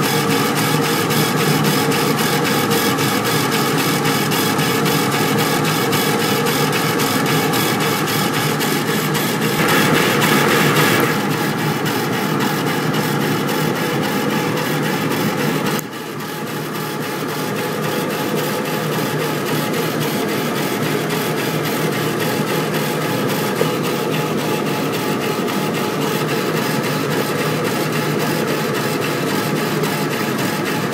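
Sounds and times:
steady machine noise: 0:00.0 - 0:15.8
laser engraver carriage shuttling: 0:09.2 - 0:11.4.

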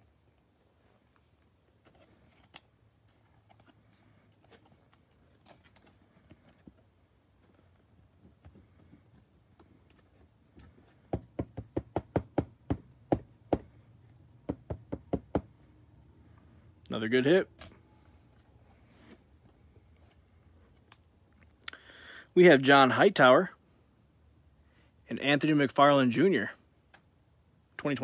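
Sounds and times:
trading cards rustling: 0:01.7 - 0:10.9.

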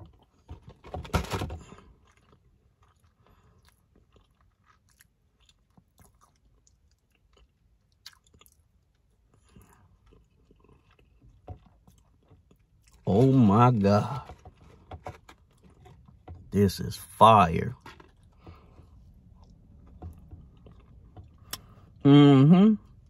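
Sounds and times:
person chewing crunchy cookie: 0:01.6 - 0:16.2, 0:17.8 - 0:22.0.

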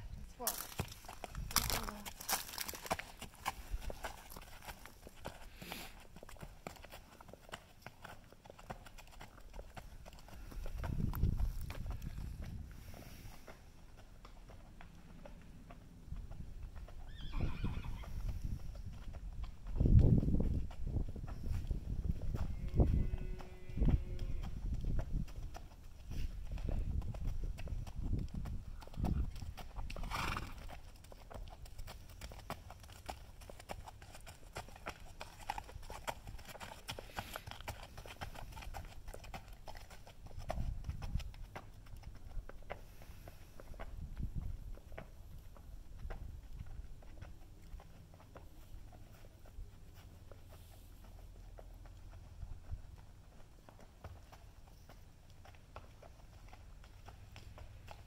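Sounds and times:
hooves clopping on dirt: 0:00.0 - 0:58.0
horse whinnying: 0:17.0 - 0:18.2, 0:30.0 - 0:30.6.

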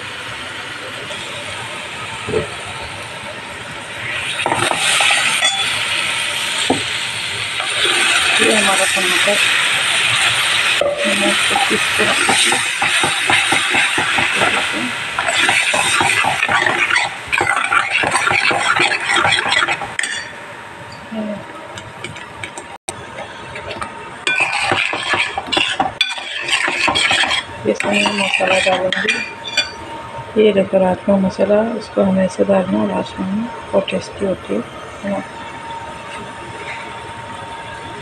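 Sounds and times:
hiss of gas stove cooking: 0:00.0 - 0:20.3, 0:22.5 - 0:29.4
tomato puree frying: 0:00.0 - 0:20.4, 0:21.8 - 0:29.4
metal spoon scraping pan: 0:10.9 - 0:14.6, 0:15.2 - 0:20.4, 0:23.6 - 0:29.8.

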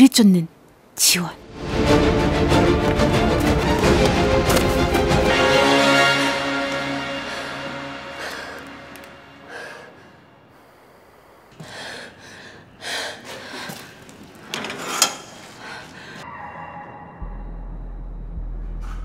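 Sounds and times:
tense drama score: 0:01.3 - 0:10.6, 0:15.8 - 0:19.0
person breathing: 0:07.0 - 0:14.1, 0:15.4 - 0:16.2.

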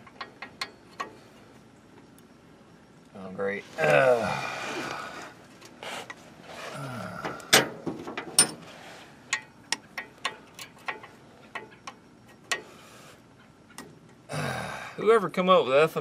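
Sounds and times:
wrench clinking on metal nut: 0:00.0 - 0:01.2, 0:08.2 - 0:08.6, 0:09.3 - 0:12.6.

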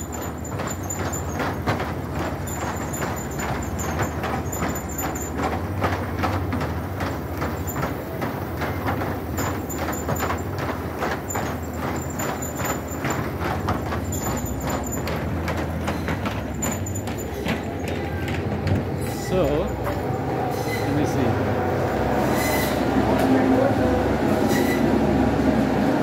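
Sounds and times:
hooves knocking on wooden slats: 0:00.0 - 0:20.0.

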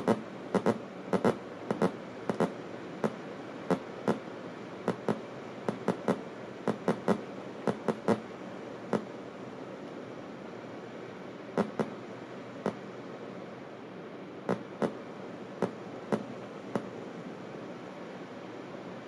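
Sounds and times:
sharp electronic clicks: 0:00.0 - 0:04.2, 0:04.9 - 0:08.2, 0:11.6 - 0:11.9
steady hiss: 0:00.0 - 0:19.0.

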